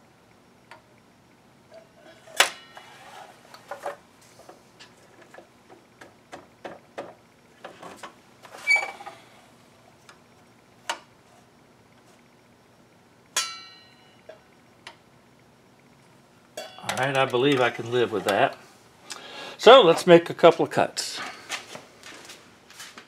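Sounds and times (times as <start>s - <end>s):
ringing metal clanks: 13.4s - 14.4s, 16.6s - 17.0s.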